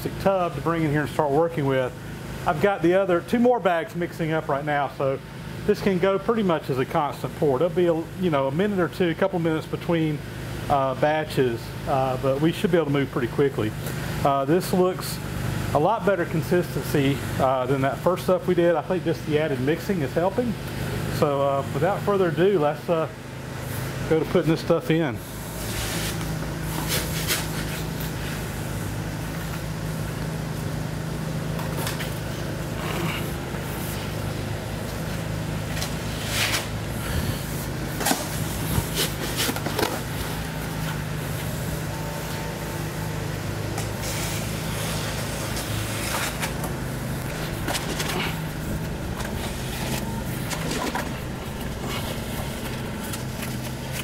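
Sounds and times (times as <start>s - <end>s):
steady low hum: 44.7s - 54.0s.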